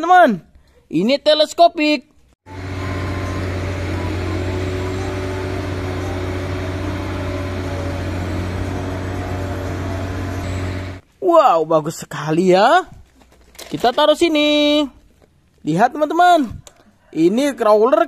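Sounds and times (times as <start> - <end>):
crane diesel engine humming: 2.5 - 11.0.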